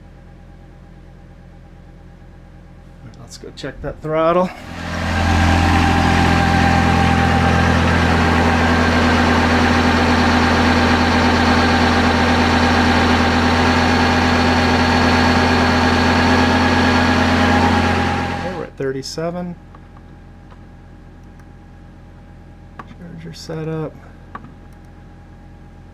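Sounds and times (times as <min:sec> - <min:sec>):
tractor diesel engine running: 0:04.5 - 0:18.7.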